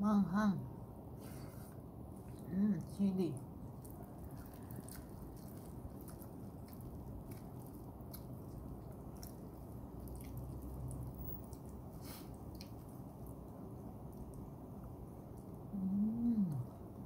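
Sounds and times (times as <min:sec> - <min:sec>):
steady low hum: 0:00.0 - 0:17.0
mouth chewing: 0:02.1 - 0:17.0
wet clicks of eating by hand: 0:03.4 - 0:15.6.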